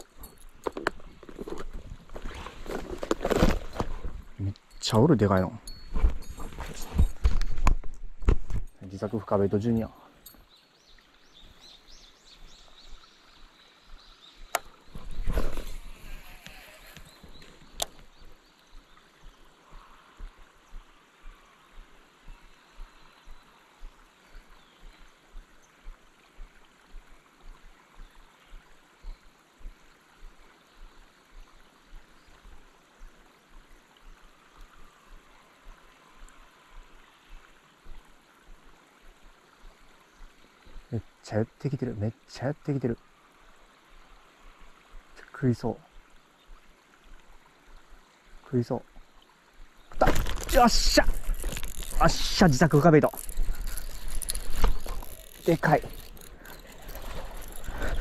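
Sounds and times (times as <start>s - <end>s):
stream water murmur: 0.0s - 58.0s
fishing reel clicks: 50.5s - 58.0s
reel ticking while cranked: 50.5s - 58.0s.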